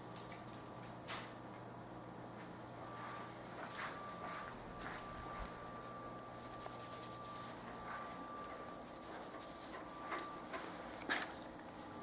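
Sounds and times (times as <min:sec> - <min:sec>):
dog claws clicking on floor: 0:00.0 - 0:01.4
faint steady high tone: 0:02.8 - 0:10.6.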